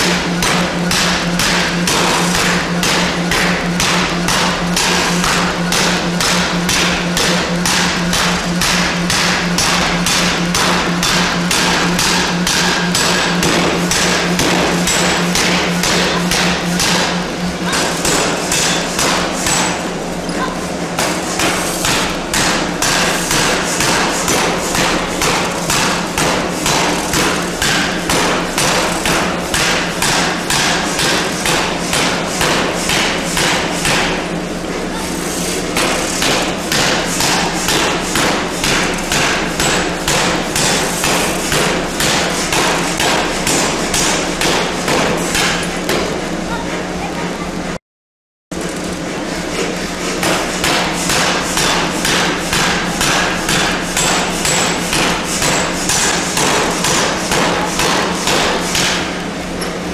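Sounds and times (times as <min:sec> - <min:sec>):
forging hammer striking steel: 0:00.0 - 0:34.3, 0:35.4 - 0:46.2, 0:50.2 - 0:59.2
steady hum: 0:00.0 - 0:47.8.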